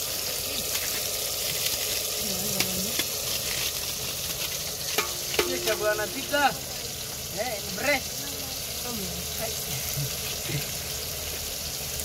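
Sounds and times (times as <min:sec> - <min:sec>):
tomatoes sizzling in hot oil: 0:00.0 - 0:12.0
wood fire crackling: 0:00.0 - 0:12.0.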